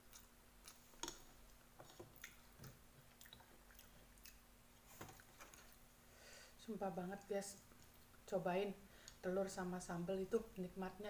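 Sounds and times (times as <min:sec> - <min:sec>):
person chewing food: 0:00.0 - 0:05.9.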